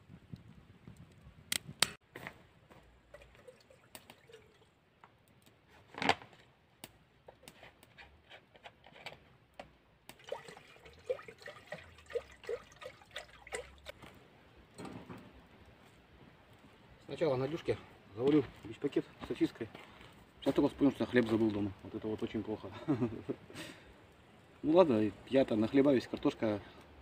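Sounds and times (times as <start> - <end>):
water dripping and trickling: 3.0 - 4.9, 10.1 - 14.1.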